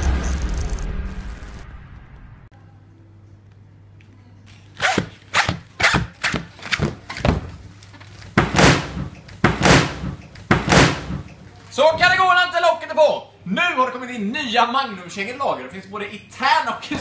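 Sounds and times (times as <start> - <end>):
boots thudding on a counter: 5.0 - 7.6, 8.3 - 11.3.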